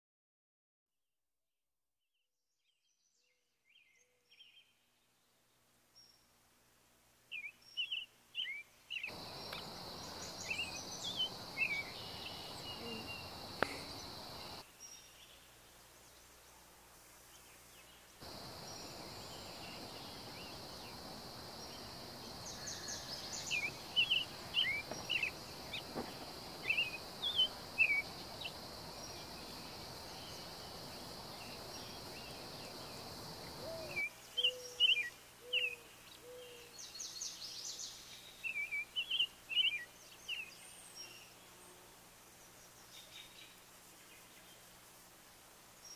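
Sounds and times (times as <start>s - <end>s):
outdoor background noise: 3.5s - 45.9s
songbirds chirping and singing: 7.3s - 15.4s, 17.6s - 41.4s.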